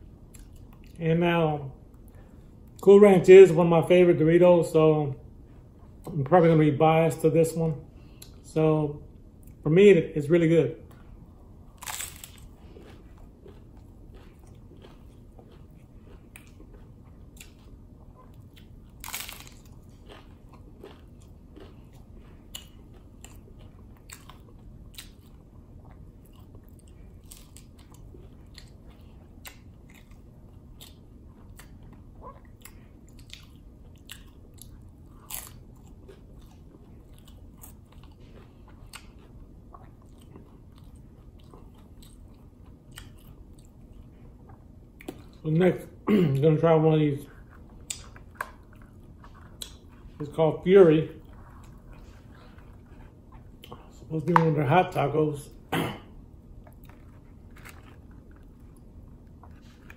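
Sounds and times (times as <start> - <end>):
person crunching taco shell: 11.6 - 43.8, 56.6 - 59.9.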